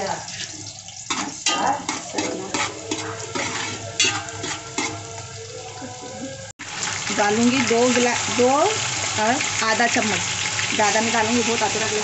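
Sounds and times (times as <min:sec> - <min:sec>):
onions frying in oil: 0:00.0 - 0:12.0
metal ladle scraping a pot: 0:00.2 - 0:05.3.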